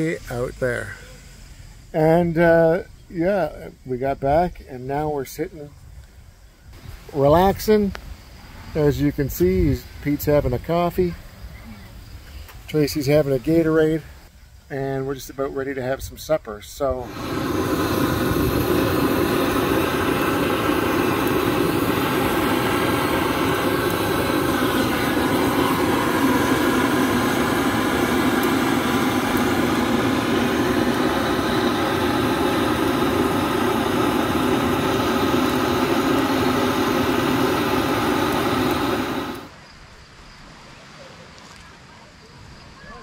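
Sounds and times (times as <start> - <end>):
propane torch roaring: 0.0 - 1.0, 16.8 - 39.5.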